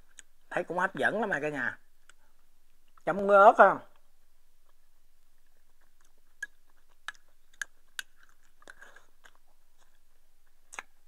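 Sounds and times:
quiet chewing: 0.0s - 0.5s, 1.9s - 3.1s, 3.9s - 11.0s.

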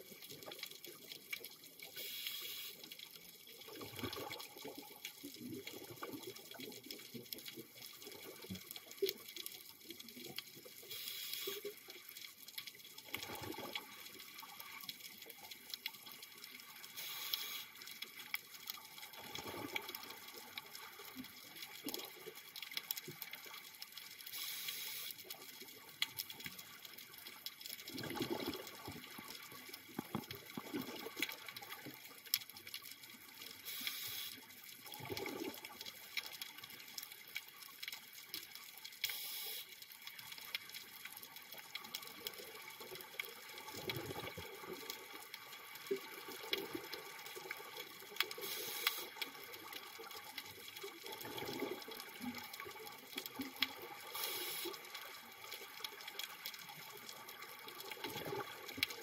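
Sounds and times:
faint steady crackle: 0.0s - 59.0s
regulator inhale hiss: 2.0s - 2.8s, 10.9s - 11.7s, 17.0s - 17.7s, 24.3s - 25.2s, 33.6s - 34.4s, 39.1s - 39.7s, 48.4s - 49.2s, 54.1s - 54.8s
exhaled bubbles rumbling: 3.7s - 5.0s, 13.2s - 14.0s, 19.2s - 20.5s, 27.8s - 31.7s, 50.9s - 52.5s.

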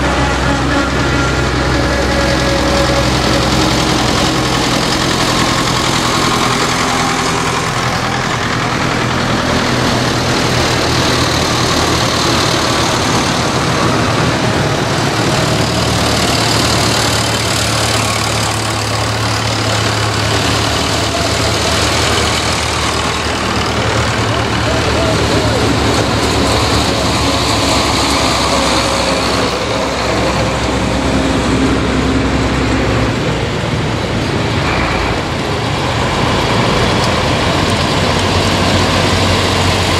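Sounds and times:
tractor engines driving past: 0.0s - 39.9s.

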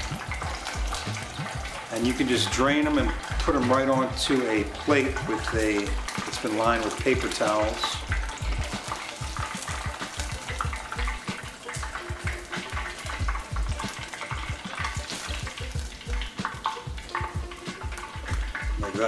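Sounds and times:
deep-frying crackling sizzle: 0.0s - 19.0s.

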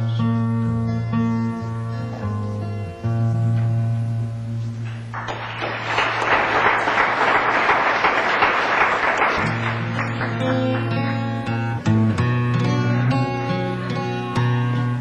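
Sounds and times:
acoustic guitar strumming: 0.0s - 5.8s, 9.3s - 15.0s
audience applause: 5.1s - 11.8s
acoustic guitar chord ringing: 9.4s - 15.0s.

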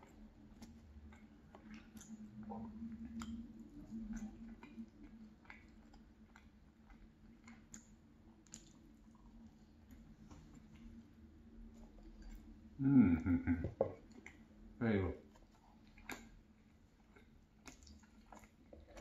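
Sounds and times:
close chewing with wet mouth sounds: 0.0s - 12.8s, 14.0s - 19.0s.

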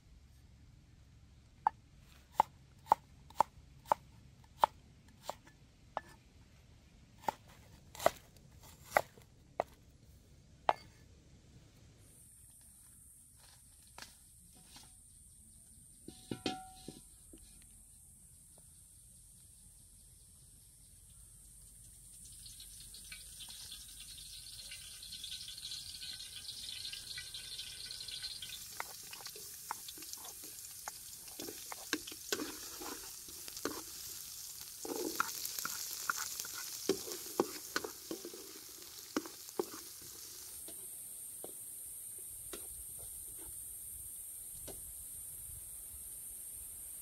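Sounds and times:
food sizzling in hot oil: 22.0s - 42.9s
spatula scraping a wok: 27.4s - 40.8s.

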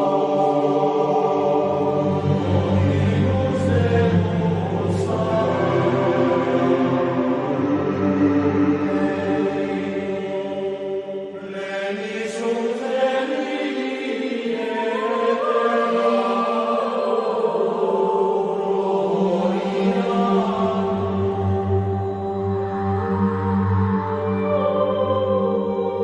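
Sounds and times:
background music with low drone: 0.0s - 11.5s, 17.3s - 26.0s
voices chanting: 0.0s - 26.0s.

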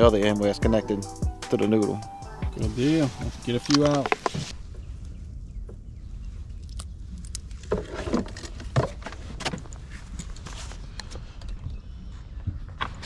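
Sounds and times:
fishing gear clattering: 3.4s - 4.4s
low steady rumble: 4.4s - 11.0s.

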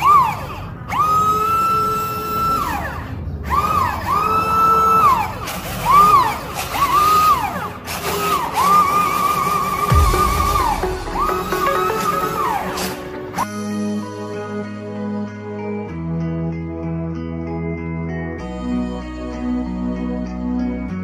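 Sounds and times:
siren wailing: 0.0s - 13.5s.

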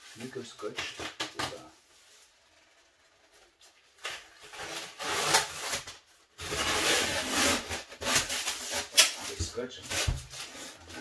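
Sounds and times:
packaging rubbing and scraping: 4.4s - 11.0s.

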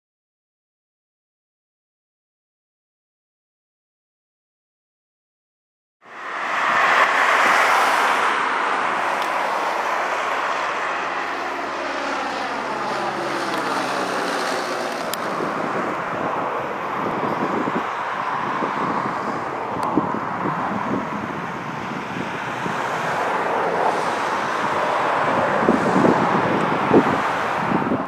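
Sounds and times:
small plane passing overhead: 6.1s - 28.0s.

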